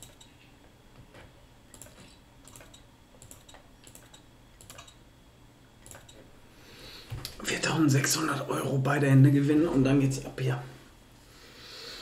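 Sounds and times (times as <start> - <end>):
computer mouse clicks: 0.0 - 0.3, 1.7 - 5.0, 5.8 - 6.2.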